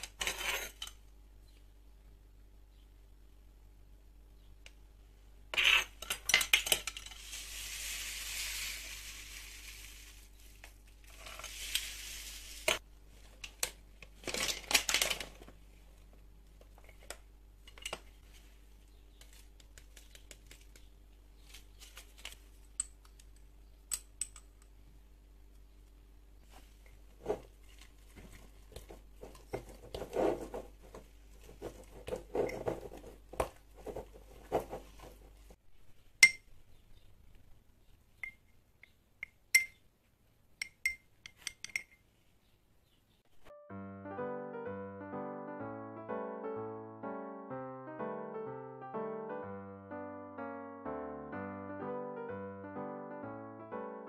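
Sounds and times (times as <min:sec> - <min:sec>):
rustling pouring: 0:06.8 - 0:13.3
dough stirred in jar: 0:27.2 - 0:35.0
spoon clinking on glass jar: 0:39.6 - 0:39.8, 0:40.6 - 0:42.0.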